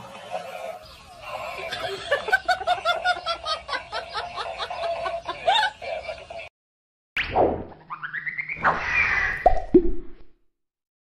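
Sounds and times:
person giggling: 1.6s - 6.0s.

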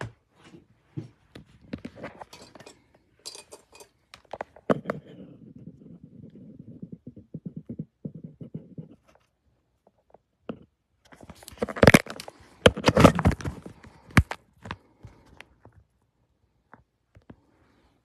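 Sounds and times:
camera handling rumble: 11.1s - 14.8s.

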